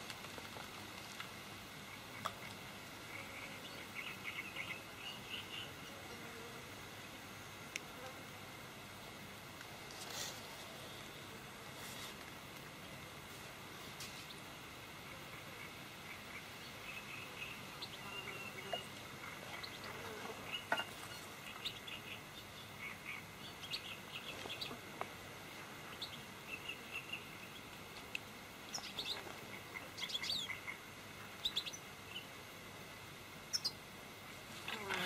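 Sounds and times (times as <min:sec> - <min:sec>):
faint steady high hiss: 0:00.0 - 0:35.0
small birds chirping: 0:03.1 - 0:06.0, 0:15.1 - 0:24.9, 0:25.8 - 0:32.4, 0:33.5 - 0:33.8.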